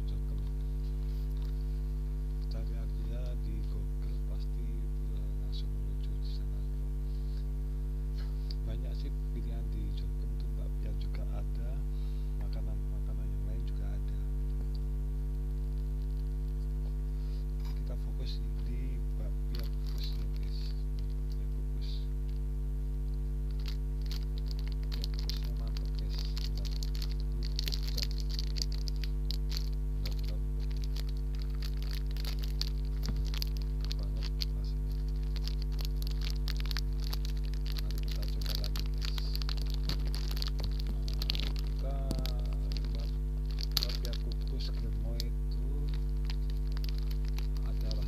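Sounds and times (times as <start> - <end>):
electrical mains hum: 0.0 - 48.0
plastic wrapper crinkling: 18.6 - 21.4, 23.1 - 48.0.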